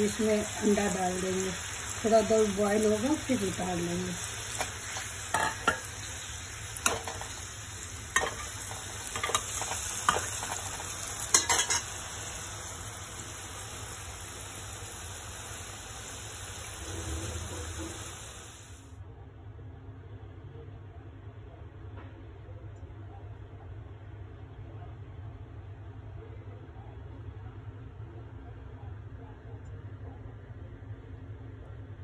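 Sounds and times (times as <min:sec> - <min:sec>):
food sizzling in a pan: 0:00.0 - 0:19.0
metal spatula scraping a pan: 0:08.1 - 0:11.9.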